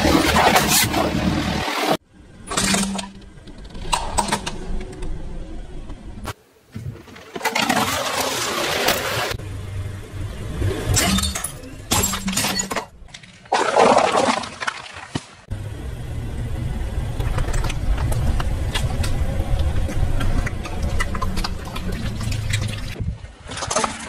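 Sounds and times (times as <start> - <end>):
car engine rumbling low: 15.5 - 23.2.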